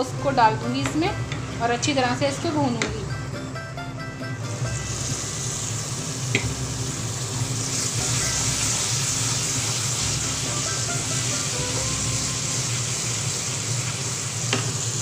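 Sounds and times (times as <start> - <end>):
paste sizzling in hot oil: 4.6 - 15.0.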